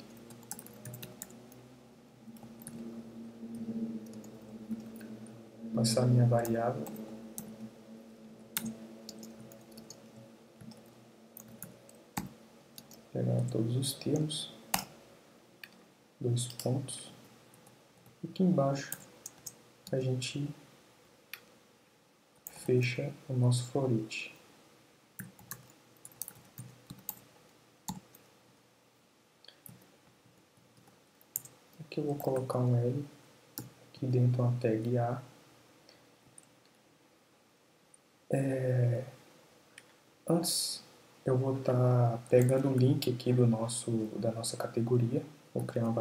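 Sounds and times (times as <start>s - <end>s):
keyboard typing: 0.0s - 1.6s, 2.3s - 2.9s, 8.6s - 13.5s, 25.2s - 27.2s, 30.8s - 32.5s
faint steady hum: 0.0s - 46.0s.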